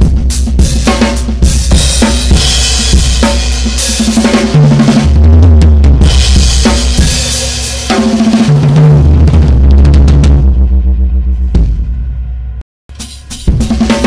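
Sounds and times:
distorted drum kit groove: 0:00.0 - 0:14.0.

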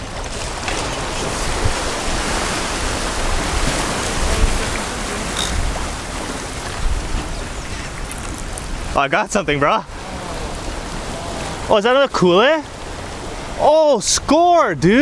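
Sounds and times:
wind buffeting microphone: 0:00.0 - 0:11.7
waves washing against rocks: 0:00.0 - 0:13.7.

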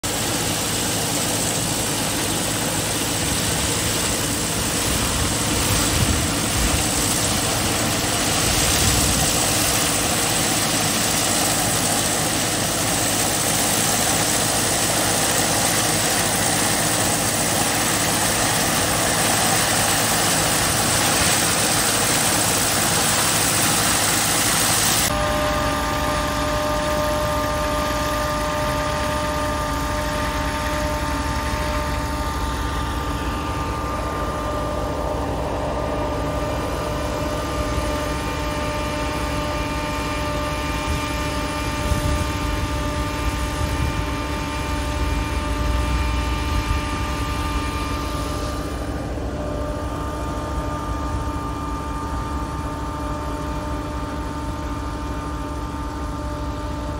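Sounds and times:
air blower rushing noise: 0:00.0 - 0:51.2
tractor engine running: 0:00.0 - 0:56.9
drone with fixed pitches: 0:25.1 - 0:54.6.

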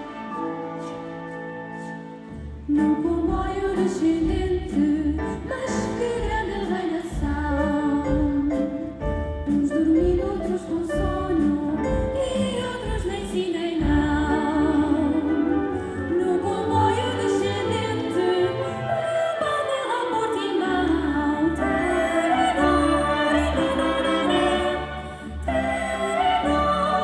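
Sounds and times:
low drum beats: 0:02.7 - 0:15.4
children's choir singing: 0:16.2 - 0:27.0.

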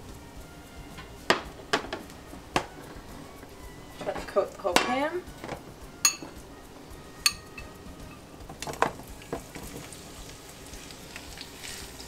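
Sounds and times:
peppers clattering into pan: 0:00.9 - 0:03.1, 0:04.0 - 0:06.4, 0:07.2 - 0:12.0
glass bowl clinking on cookware: 0:06.0 - 0:06.4, 0:07.2 - 0:07.7.

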